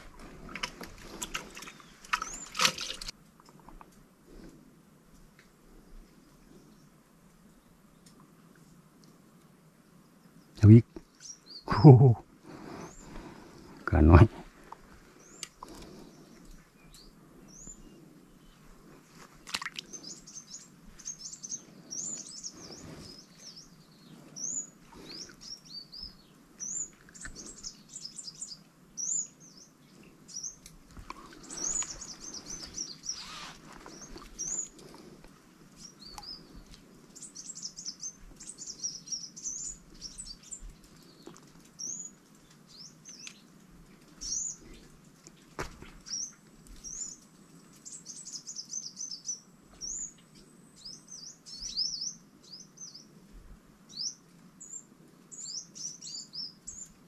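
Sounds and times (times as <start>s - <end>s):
small birds chirping: 0.0s - 9.3s, 9.9s - 57.0s.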